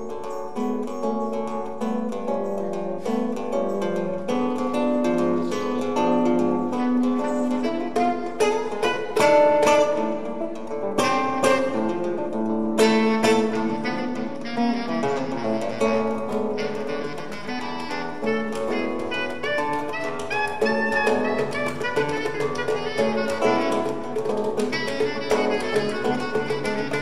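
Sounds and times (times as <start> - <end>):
acoustic guitar picking: 0.0 - 27.0
hand drum tapping: 0.0 - 27.0
bass clarinet held notes: 5.4 - 12.1, 12.8 - 27.0.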